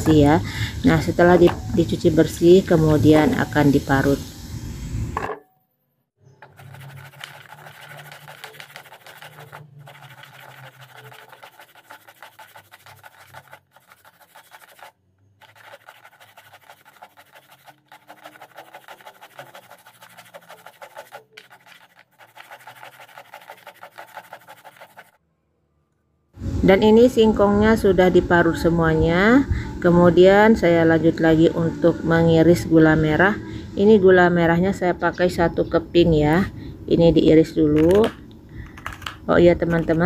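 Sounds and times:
cassava rasping on hand grater: 0:06.4 - 0:25.2.

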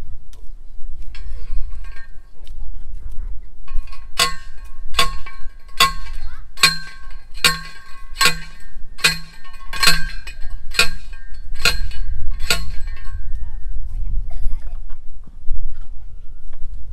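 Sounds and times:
metallic clangs of post driver: 0:03.7 - 0:13.3.

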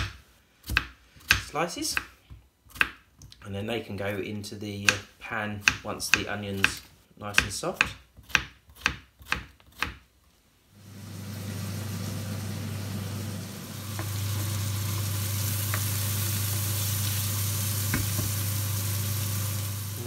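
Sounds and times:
onion sizzling in pan: 0:10.8 - 0:20.0.

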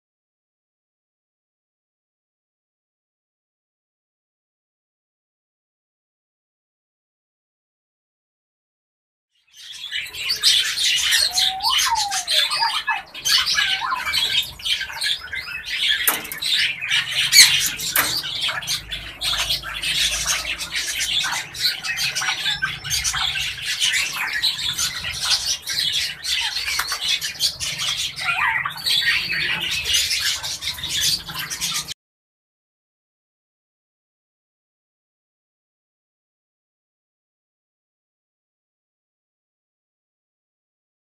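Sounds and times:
birds chattering: 0:09.6 - 0:32.0
gliding whistled bird notes: 0:10.1 - 0:15.7.

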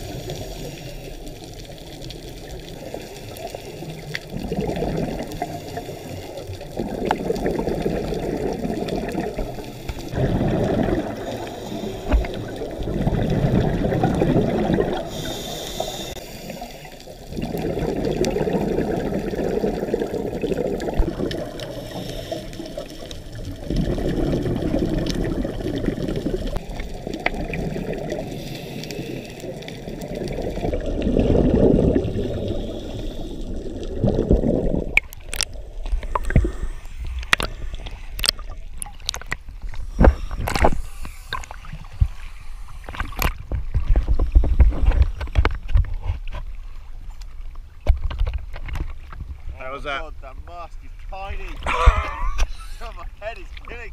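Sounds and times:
high-pitched hiss: 0:15.1 - 0:16.9
underwater regulator breathing bubbles: 0:39.1 - 0:45.1.

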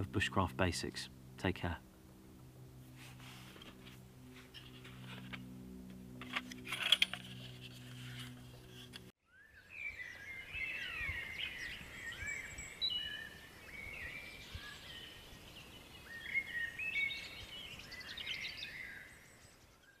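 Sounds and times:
songbirds chirping and whistling: 0:08.7 - 0:20.0.

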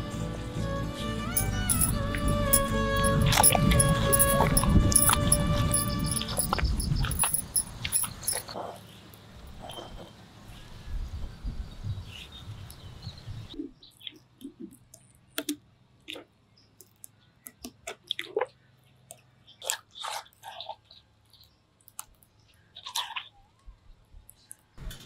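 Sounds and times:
hand squelching in wet batter: 0:22.0 - 0:23.5.

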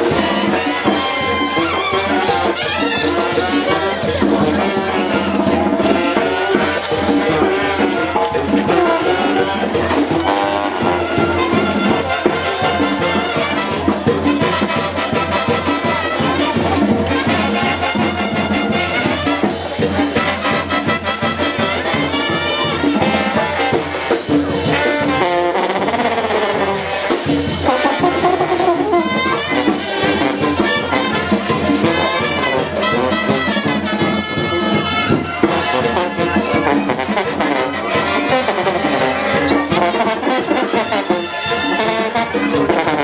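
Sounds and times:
brass band music: 0:00.0 - 0:43.0
steady drum beat: 0:00.0 - 0:43.0.

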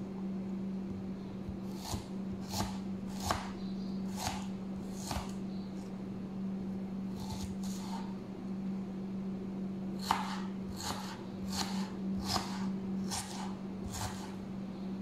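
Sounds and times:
steady low hum: 0:00.0 - 0:15.0
knife chopping on plastic board: 0:01.6 - 0:05.4, 0:07.2 - 0:08.1, 0:10.0 - 0:14.4.

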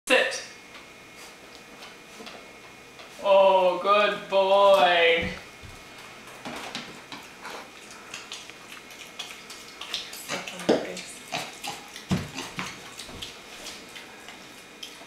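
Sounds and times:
hooves stepping on tile floor: 0:04.7 - 0:15.0
pig chewing and smacking: 0:06.7 - 0:15.0.

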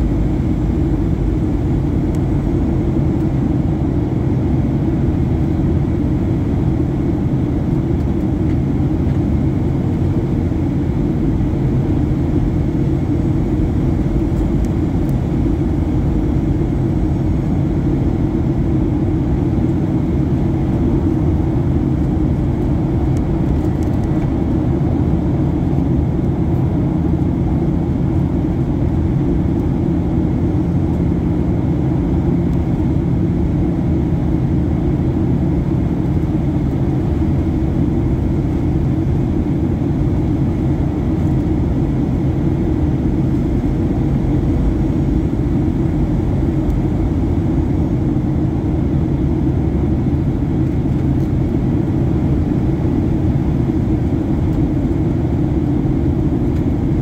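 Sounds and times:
faint steady hums: 0:00.0 - 0:57.0
jet airliner cabin drone: 0:00.0 - 0:57.0.

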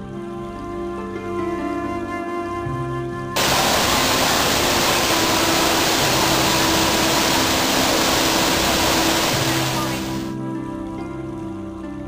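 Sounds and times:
soft background music: 0:00.0 - 0:12.0
waterfall rushing: 0:03.4 - 0:10.3.

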